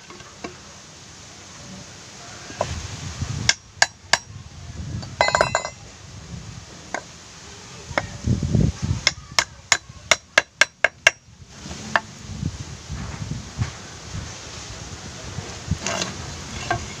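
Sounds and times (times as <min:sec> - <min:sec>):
metallic jingle: 0:05.2 - 0:05.8.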